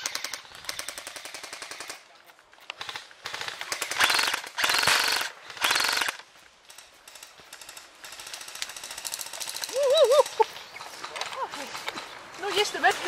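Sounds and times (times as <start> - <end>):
airsoft rifle full-auto bursts: 2.8 - 6.2.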